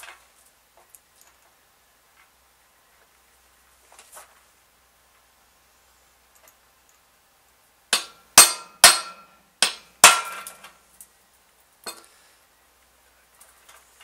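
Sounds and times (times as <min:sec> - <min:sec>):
hammer striking steel punch: 0:08.0 - 0:10.6.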